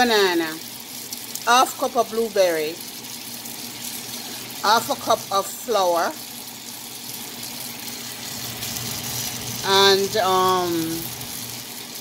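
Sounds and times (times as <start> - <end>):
woman speaking: 0.0 - 0.6, 1.4 - 2.8, 4.6 - 6.2, 9.6 - 11.1.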